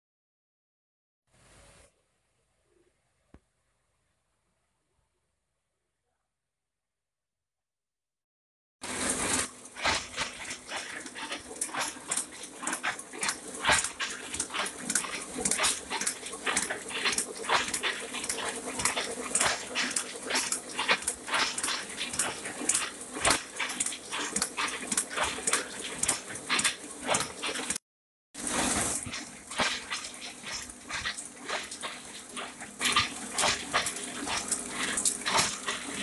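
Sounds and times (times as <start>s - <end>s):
printing press clicking and clatter: 9.2s - 27.8s.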